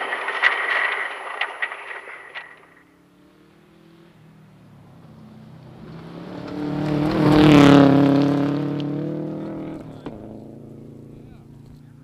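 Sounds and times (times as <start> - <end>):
gravel spraying: 0.0 - 3.0
rally car engine passing: 0.0 - 12.0.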